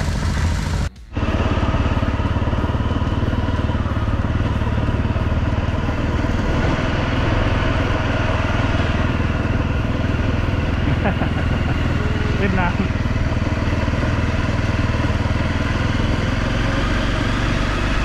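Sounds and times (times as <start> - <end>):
motorcycle engine running: 0.0 - 18.0.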